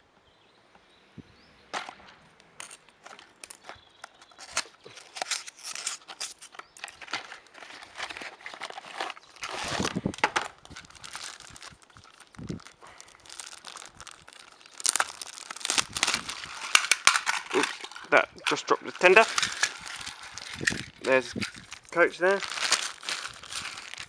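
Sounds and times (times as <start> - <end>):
plastic bag crinkling: 2.6 - 24.0
cardboard box rustling: 4.5 - 10.0.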